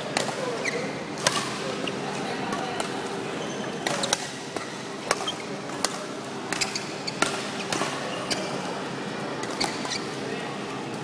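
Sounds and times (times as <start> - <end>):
sports hall hubbub: 0.0 - 11.0
rackets striking shuttlecock: 3.8 - 8.0.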